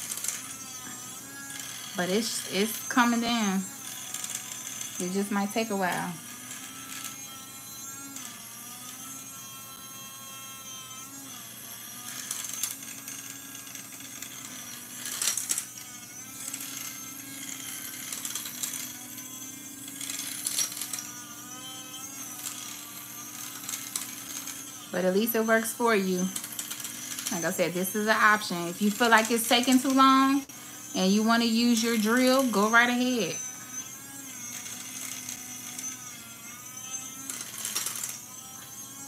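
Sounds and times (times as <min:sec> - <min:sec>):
electric grinder motor hum: 0:00.0 - 0:39.0.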